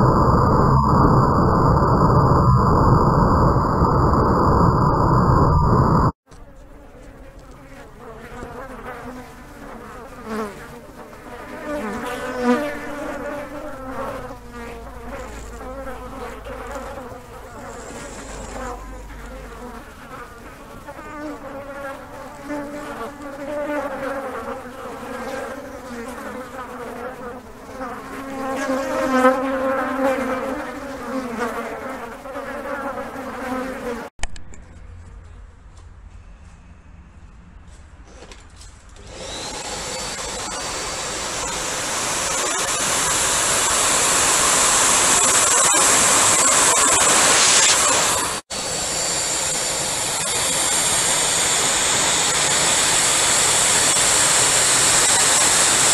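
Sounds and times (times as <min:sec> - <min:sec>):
loud rush of noise: 0:00.0 - 0:06.2
blowflies buzzing: 0:00.0 - 0:34.1, 0:39.2 - 0:55.9.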